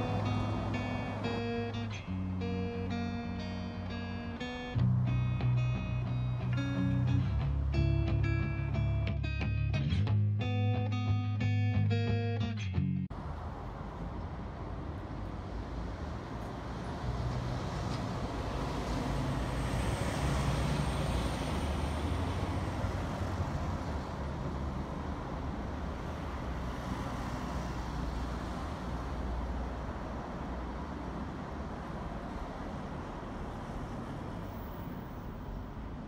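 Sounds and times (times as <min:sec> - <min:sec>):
bus passing: 0:00.0 - 0:12.2, 0:13.1 - 0:36.0
cars passing: 0:00.0 - 0:36.0.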